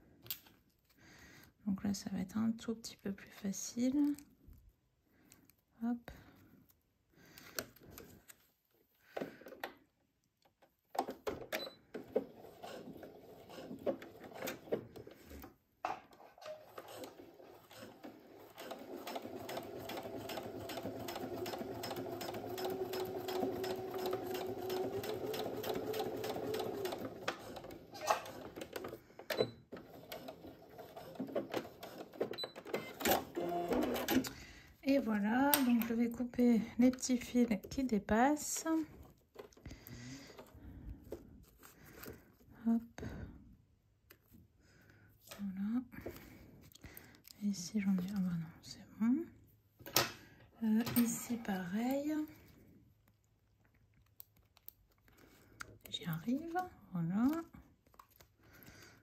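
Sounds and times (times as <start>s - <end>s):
sewing machine stitching: 11.0s - 15.4s, 16.1s - 34.4s.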